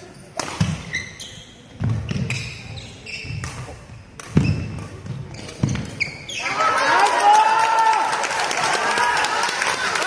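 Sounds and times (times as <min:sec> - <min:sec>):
shoes squeaking on court floor: 0:00.0 - 0:06.6
racket striking shuttlecock: 0:00.3 - 0:01.0, 0:03.2 - 0:06.0.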